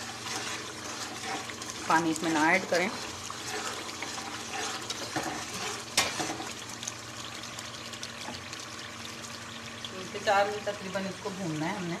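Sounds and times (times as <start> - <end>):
spatula stirring in pot: 0.0 - 8.3
gravy bubbling and sizzling: 0.0 - 12.0.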